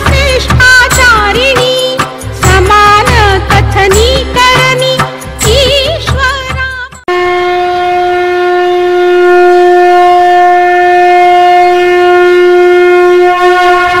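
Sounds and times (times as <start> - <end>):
wind instrument long note: 7.1 - 14.0.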